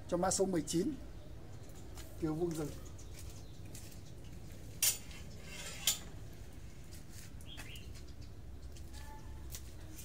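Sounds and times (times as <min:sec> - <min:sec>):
small bird chirping: 0:00.7 - 0:04.4, 0:07.4 - 0:08.8.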